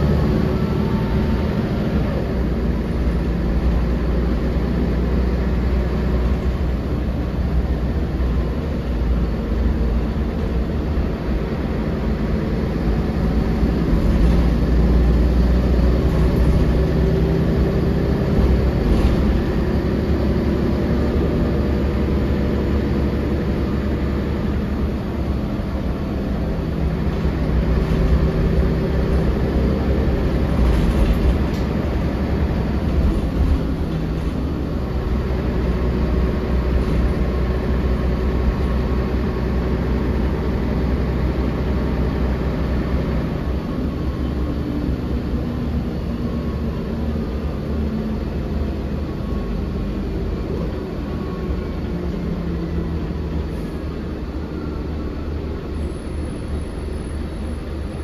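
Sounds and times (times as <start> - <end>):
bus engine rumble: 0.0 - 58.0
road and body noise: 23.0 - 40.0.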